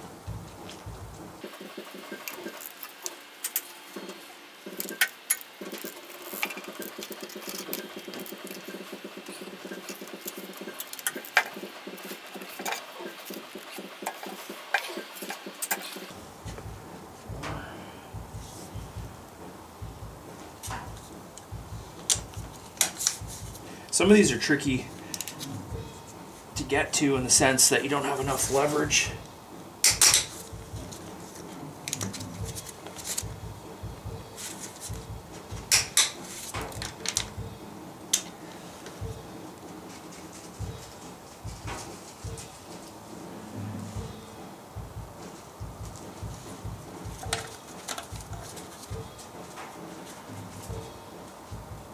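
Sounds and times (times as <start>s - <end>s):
sharp metal clicks: 29.8s - 31.1s.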